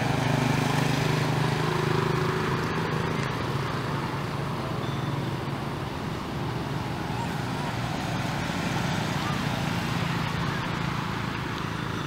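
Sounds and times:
background rush: 0:00.0 - 0:12.0.

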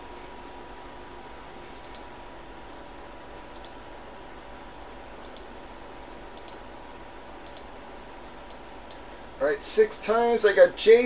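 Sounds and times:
faint electrical hum: 0:00.0 - 0:11.0
computer mouse clicks: 0:01.3 - 0:02.1, 0:03.5 - 0:03.8, 0:05.2 - 0:05.5, 0:06.3 - 0:06.6, 0:07.4 - 0:07.7, 0:08.4 - 0:09.0.

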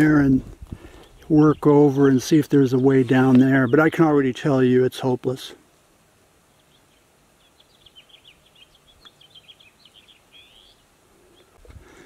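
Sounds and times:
small bird twittering: 0:06.5 - 0:11.6.

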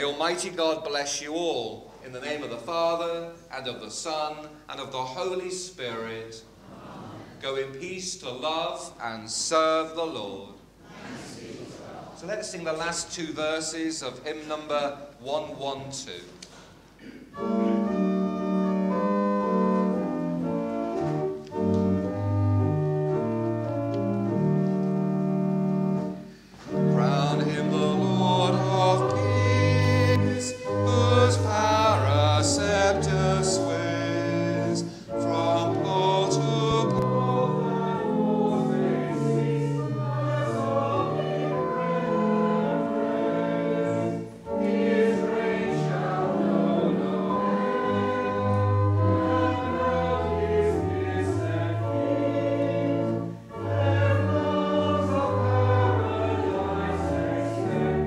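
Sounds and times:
church organ playing a hymn: 0:00.0 - 0:06.4, 0:17.2 - 0:58.0
congregation singing: 0:01.6 - 0:15.1, 0:17.0 - 0:58.0.

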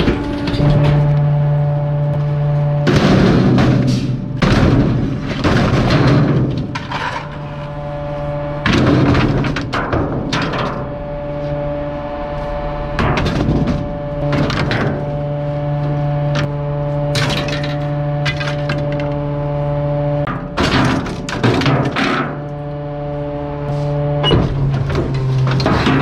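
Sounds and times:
hydraulics humming: 0:00.0 - 0:26.0
wood cracking and splintering: 0:04.4 - 0:07.9, 0:17.1 - 0:19.2.

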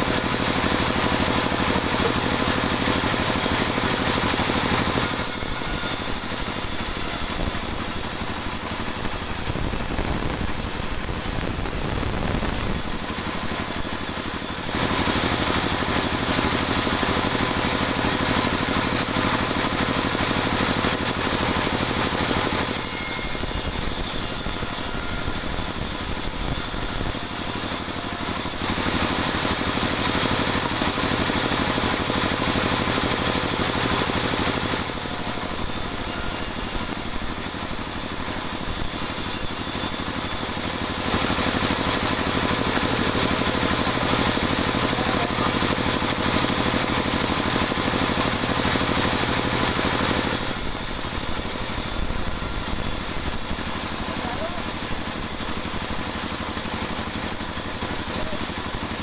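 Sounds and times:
band saw humming: 0:00.0 - 0:31.6
saw cutting wood hiss: 0:00.0 - 0:59.0.

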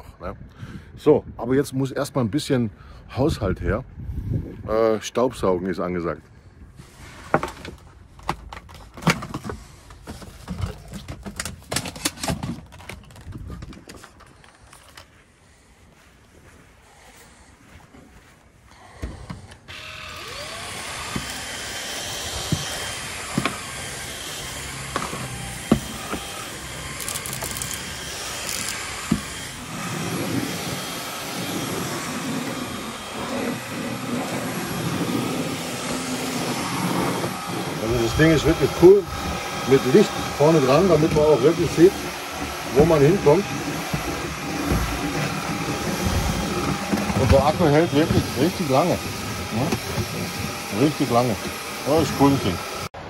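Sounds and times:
stick vacuum cleaner running: 0:18.8 - 0:53.0
crackling rattles: 0:24.6 - 0:29.6.

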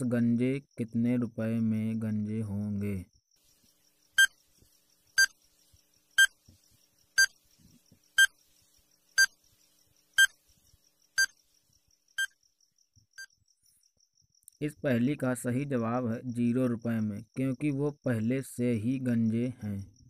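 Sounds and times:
short electronic beeps: 0:09.2 - 0:09.4.

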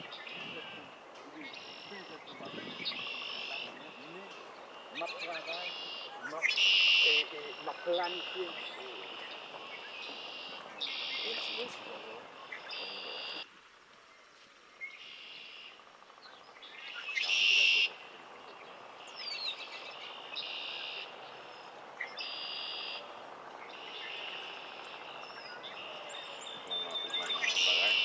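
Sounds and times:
buzzy bird trills: 0:01.4 - 0:13.4.

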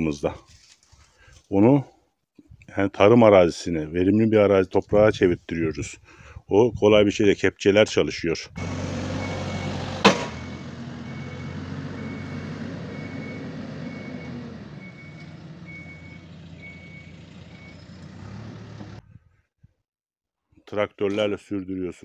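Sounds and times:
diesel engine running: 0:08.6 - 0:19.0
reversing alarm beeping: 0:09.1 - 0:17.9
sharp knock: 0:10.0 - 0:10.4.

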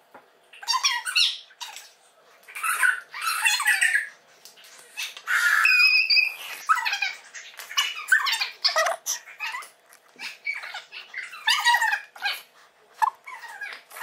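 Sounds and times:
glue bottle squeaking and sputtering: 0:08.6 - 0:09.1.

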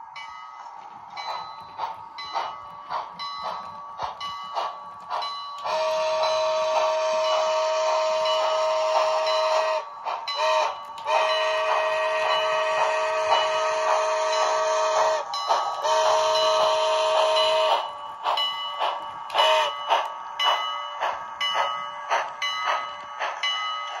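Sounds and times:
steam exhaust chuffing: 0:00.7 - 0:24.0
model train whistle: 0:05.7 - 0:17.9, 0:19.3 - 0:19.8.

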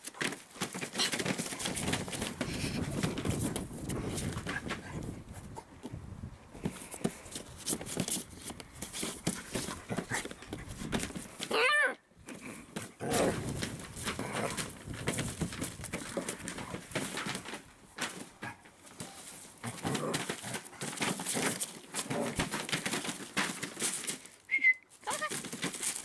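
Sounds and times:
dogs scuffling on floor: 0:00.0 - 0:05.2, 0:06.6 - 0:11.6, 0:12.4 - 0:26.0.

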